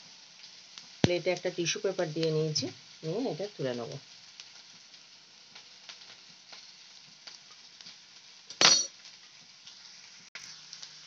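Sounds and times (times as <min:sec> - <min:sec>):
oil sizzling in frying pan: 0:00.0 - 0:11.0
plate clinking against pan: 0:08.5 - 0:09.0.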